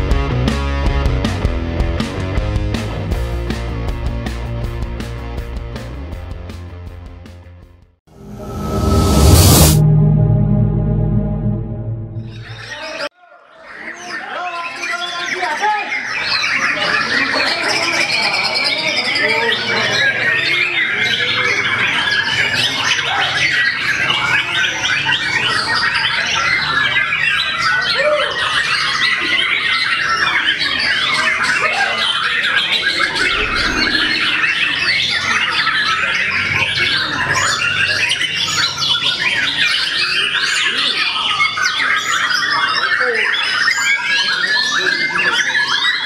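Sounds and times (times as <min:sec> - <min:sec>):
birds singing and chattering: 0:13.5 - 0:46.0.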